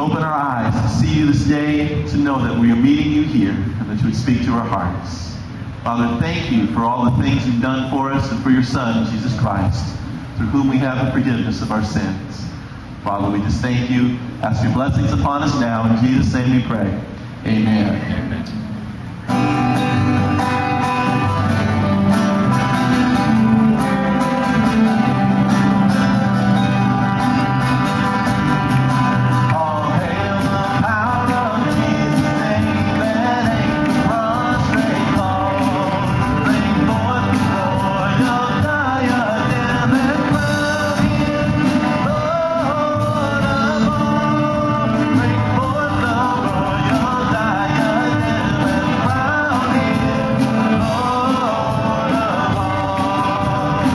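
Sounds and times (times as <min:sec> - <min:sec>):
worship band playing: 0:00.0 - 0:53.9
people singing: 0:28.2 - 0:53.9.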